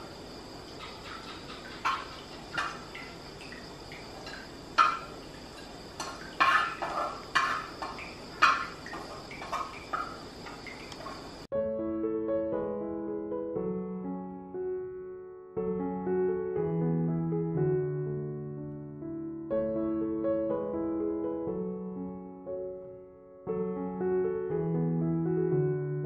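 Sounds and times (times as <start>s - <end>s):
metal utensil scraping a wok: 6.4s - 7.8s.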